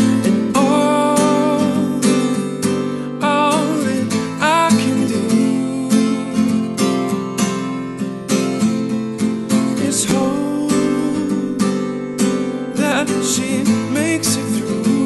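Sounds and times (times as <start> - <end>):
man singing: 0.0 - 7.0, 9.5 - 11.8, 12.7 - 15.0
acoustic guitar strumming: 0.0 - 15.0.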